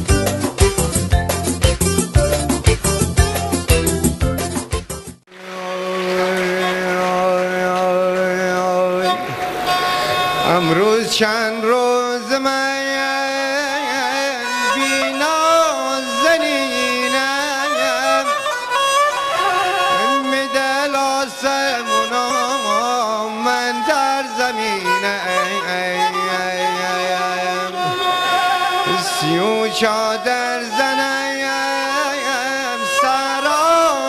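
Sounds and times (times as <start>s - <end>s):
ornamented melody instrumental: 0.0s - 10.6s, 13.8s - 34.0s
low drone: 5.3s - 11.6s.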